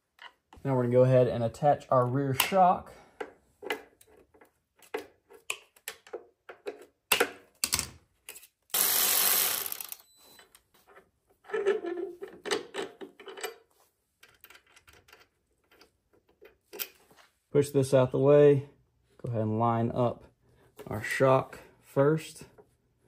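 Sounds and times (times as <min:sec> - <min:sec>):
metal bike parts clicking and knocking: 0:02.3 - 0:08.5, 0:11.4 - 0:17.0.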